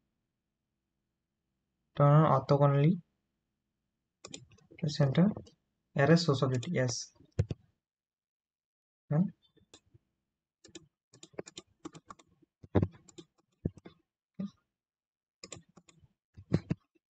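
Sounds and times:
keyboard and mouse clicking: 4.3s - 5.5s, 6.4s - 7.6s, 10.6s - 13.9s, 15.4s - 16.8s.

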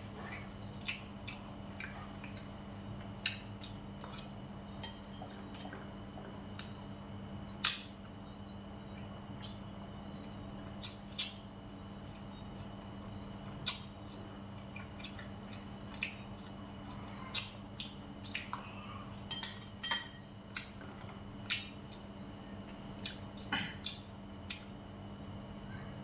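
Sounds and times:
steady low hum: 0.0s - 26.0s
utensils clinking on ceramic bowl: 4.8s - 5.8s, 19.3s - 20.3s.

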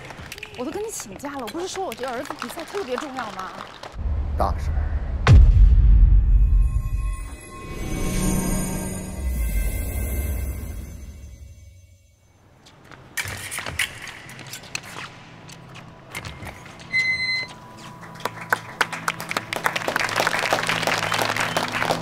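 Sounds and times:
title music: 4.0s - 11.8s.

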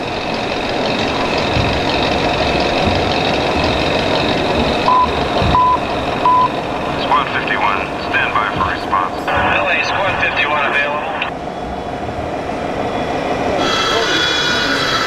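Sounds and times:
background rumble: 0.0s - 14.1s
reversing alarm beeps: 1.0s - 7.2s, 8.2s - 10.8s.

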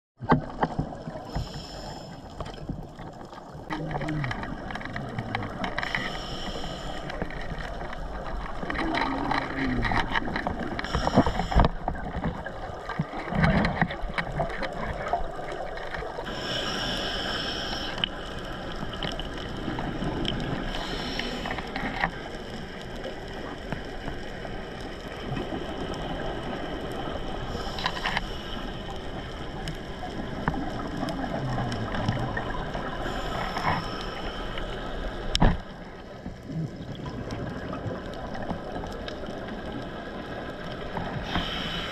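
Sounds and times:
regulator inhalation hiss: 1.3s - 2.3s, 5.8s - 7.2s, 10.8s - 11.8s, 16.3s - 18.1s, 20.7s - 21.6s, 41.2s - 41.9s.

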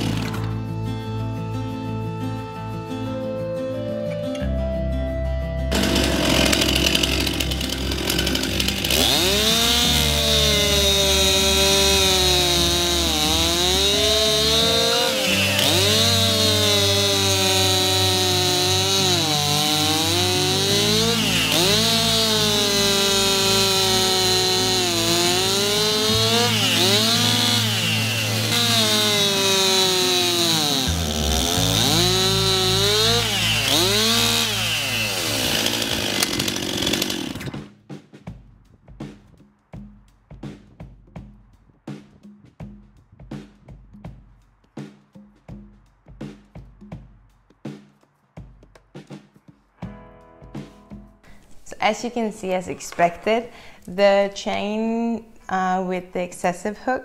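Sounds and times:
chainsaw cutting through log: 0.0s - 0.6s, 5.7s - 37.7s.

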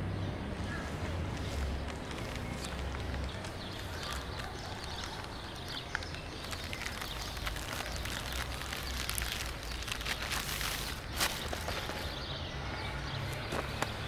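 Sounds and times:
small clicks and crackles: 1.3s - 12.1s.

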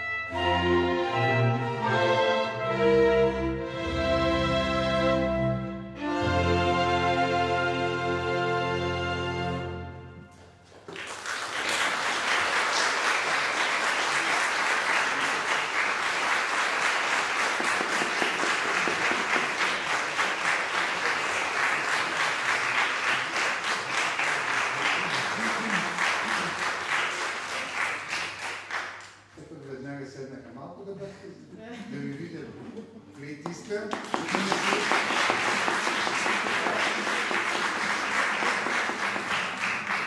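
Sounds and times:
audience applauding: 10.8s - 29.3s, 33.5s - 40.0s.

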